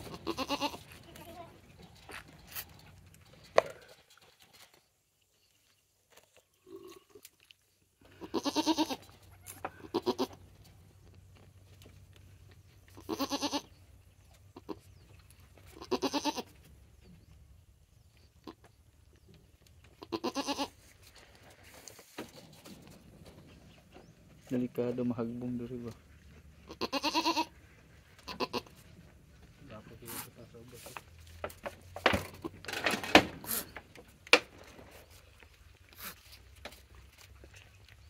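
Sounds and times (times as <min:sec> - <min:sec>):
goats bleating: 0:00.0 - 0:01.6, 0:08.1 - 0:10.4, 0:13.0 - 0:13.7, 0:15.7 - 0:16.5, 0:20.0 - 0:20.8, 0:26.6 - 0:27.6, 0:28.2 - 0:28.8.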